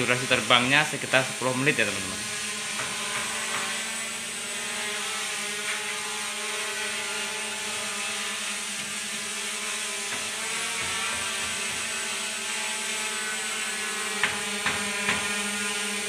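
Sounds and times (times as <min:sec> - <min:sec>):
toy quadcopter whirring: 0:00.0 - 0:16.0.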